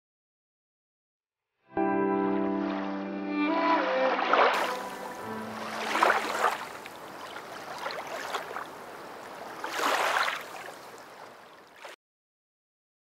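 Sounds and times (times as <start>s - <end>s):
soft water wash: 2.5s - 12.0s
surging water swells: 2.5s - 12.0s.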